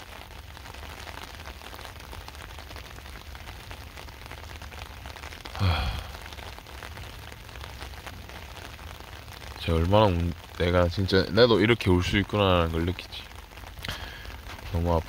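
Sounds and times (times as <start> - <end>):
rain falling on concrete: 0.0 - 15.0
raindrop taps: 0.0 - 15.0
man's short voiced sound: 5.5 - 6.2.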